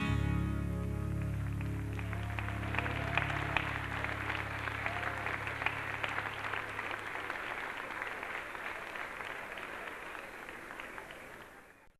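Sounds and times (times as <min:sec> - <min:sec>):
band holding low note: 0:00.0 - 0:07.1
audience applauding: 0:00.9 - 0:11.9.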